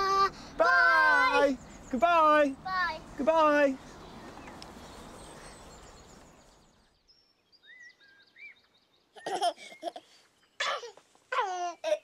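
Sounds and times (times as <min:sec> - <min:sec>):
outdoor background noise: 0:00.0 - 0:12.0
faint bird chirps: 0:03.8 - 0:10.8
baby giggling: 0:09.2 - 0:12.0.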